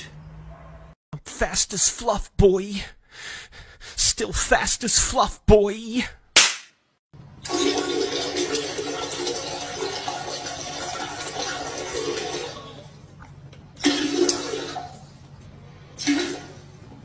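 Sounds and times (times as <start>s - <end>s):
toilet flushing: 7.4s - 13.0s, 13.8s - 15.2s, 15.8s - 17.0s.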